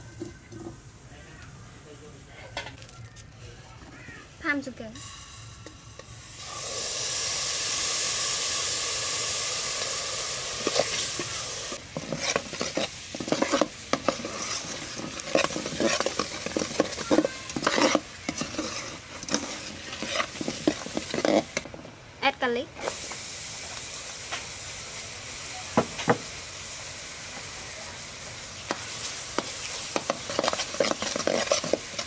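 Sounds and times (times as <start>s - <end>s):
sauce sizzling and bubbling: 4.0s - 32.0s
ladle scraping and clinking on pot: 10.6s - 21.7s, 29.4s - 32.0s.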